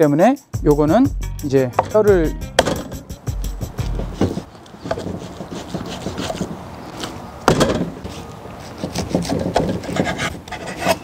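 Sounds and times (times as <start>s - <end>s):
knife knocking on wooden board: 1.8s - 3.1s
knife cutting raw meat: 4.0s - 7.2s, 8.0s - 11.0s.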